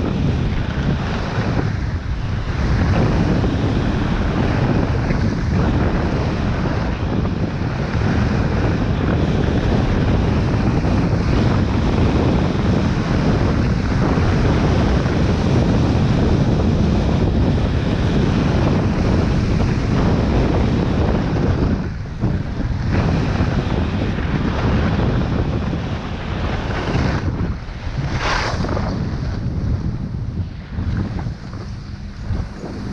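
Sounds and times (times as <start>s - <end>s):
wind buffeting microphone: 0.0s - 32.9s
ski edges scraping snow: 28.0s - 28.8s.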